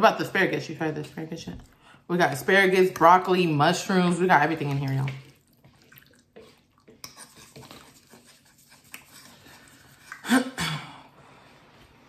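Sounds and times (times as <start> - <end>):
fork twirling pasta: 5.1 - 10.3.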